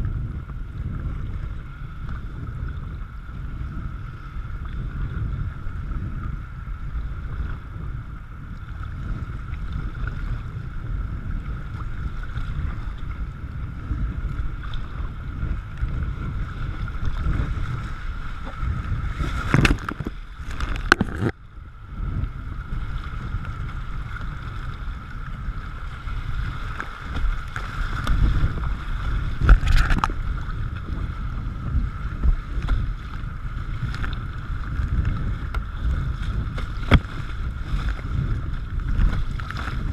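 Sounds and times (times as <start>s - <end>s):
low wind rumble: 0.0s - 39.9s
water splashing over camera: 0.0s - 39.9s
rushing water: 4.1s - 39.9s
paddle splashes: 8.5s - 39.9s.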